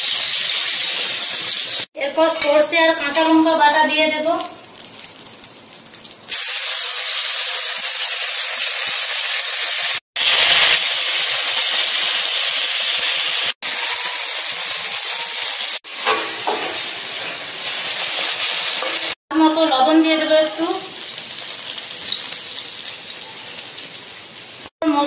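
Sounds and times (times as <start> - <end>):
paste sizzling in hot oil: 6.3 - 19.2, 20.2 - 24.7.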